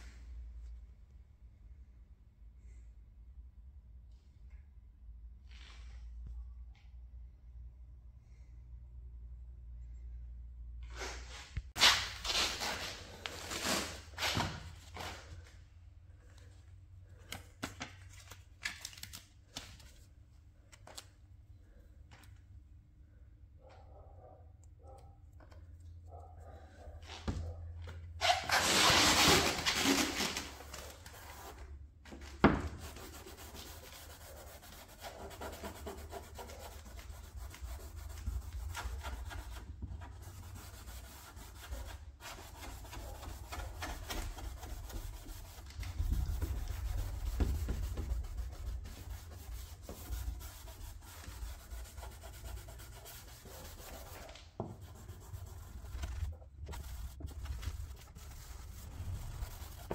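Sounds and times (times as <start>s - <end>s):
sandpaper rubbing car paint: 32.6s - 59.9s.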